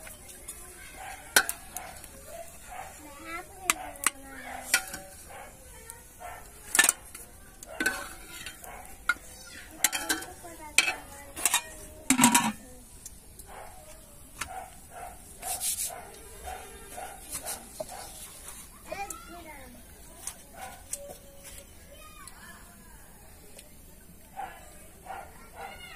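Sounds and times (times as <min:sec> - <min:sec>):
metal ladle clinking on pots: 0:01.3 - 0:02.1, 0:03.7 - 0:05.2, 0:06.6 - 0:12.6.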